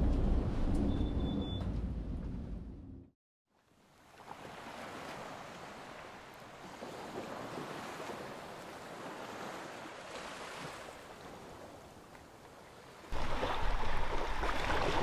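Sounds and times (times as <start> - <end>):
wind: 0.0 - 15.0
small waves on a beach: 3.5 - 15.0.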